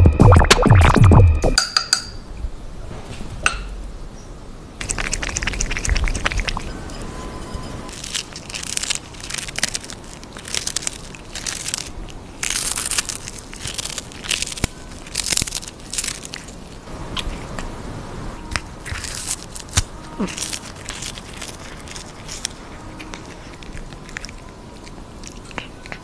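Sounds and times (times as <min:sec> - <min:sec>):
cat crunching fish: 0:04.8 - 0:06.7, 0:07.9 - 0:26.0.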